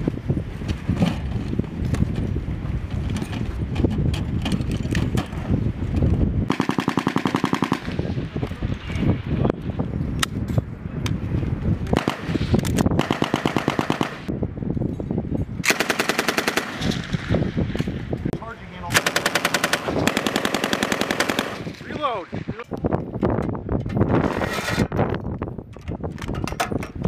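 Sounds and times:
machine guns firing bursts: 6.5s - 7.9s, 12.0s - 12.3s, 13.0s - 14.3s, 15.6s - 17.0s, 18.9s - 21.7s.

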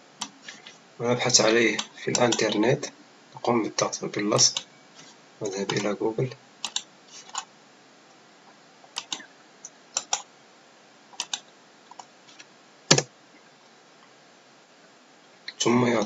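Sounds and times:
mouse and keyboard clicks: 1.8s - 2.6s, 5.6s - 5.9s, 6.6s - 7.5s, 8.9s - 9.2s, 10.0s - 10.3s, 11.2s - 13.1s.

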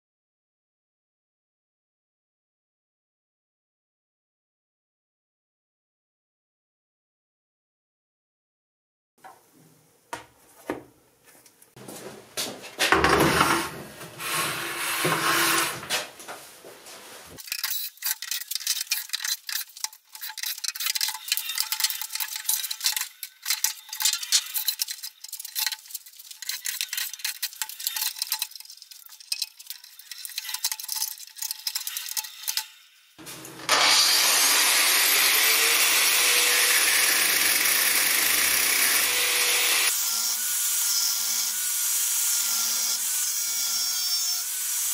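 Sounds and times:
angle grinder cutting steel: 13.3s - 15.9s, 17.4s - 44.9s.

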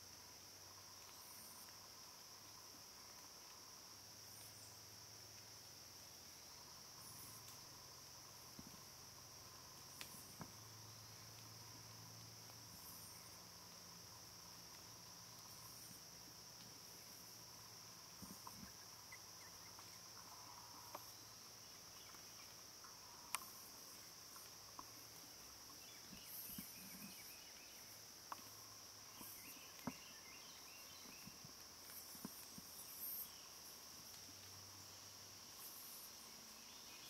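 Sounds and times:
insect chorus drone: 0.0s - 37.0s
faint clicks and ticks: 9.6s - 30.0s.

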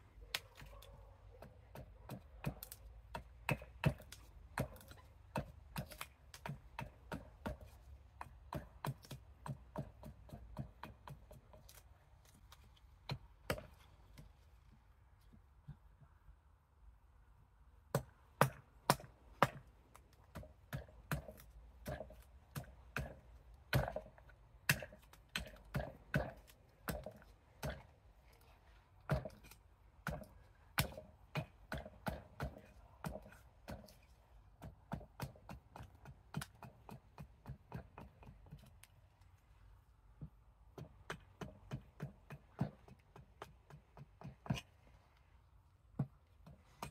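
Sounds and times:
axe chopping wood: 1.4s - 11.8s, 13.0s - 14.3s, 17.9s - 27.9s, 29.0s - 38.7s, 40.2s - 44.7s, 45.9s - 46.9s.

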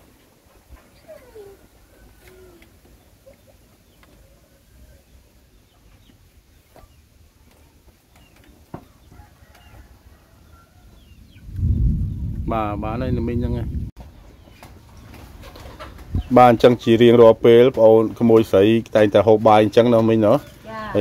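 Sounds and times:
chicken clucking: 0.7s - 11.1s, 14.2s - 17.1s.

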